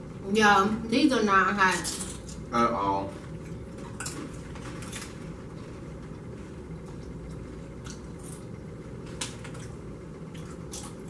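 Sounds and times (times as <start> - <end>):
low room hum: 0.0 - 11.0
tortilla chips crunching: 6.9 - 11.0.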